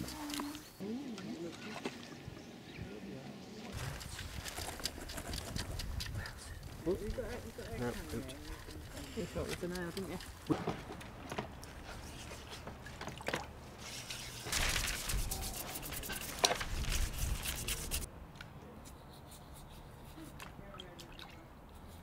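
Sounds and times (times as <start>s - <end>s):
wet scrubbing and scraping: 3.7s - 10.5s, 11.6s - 18.1s
water dripping and splashing: 20.4s - 21.5s.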